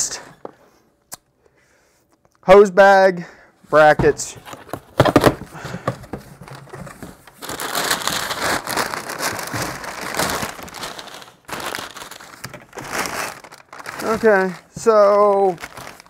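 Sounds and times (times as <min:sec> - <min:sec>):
plastic bags crinkling: 0:04.5 - 0:16.0.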